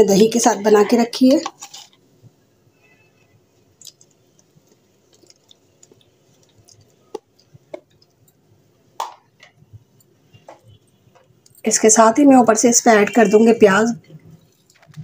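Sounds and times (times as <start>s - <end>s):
wet squishing of poured chutney: 3.7s - 8.2s.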